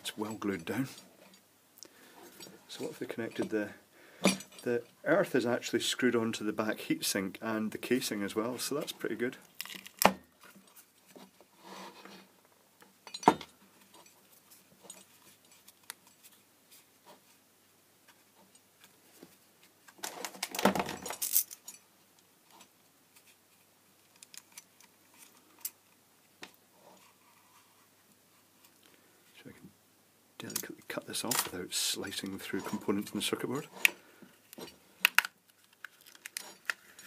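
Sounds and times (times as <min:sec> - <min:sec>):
small clicks and clinks: 0:20.1 - 0:21.9
wires rustling: 0:30.4 - 0:37.0.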